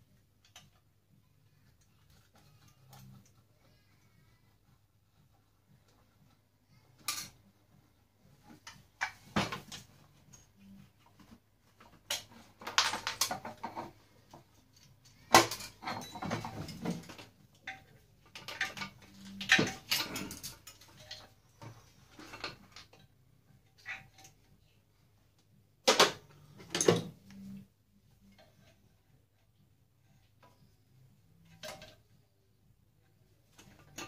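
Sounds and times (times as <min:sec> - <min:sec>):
metal parts clinking and rattling: 0:12.0 - 0:14.0, 0:14.7 - 0:21.4.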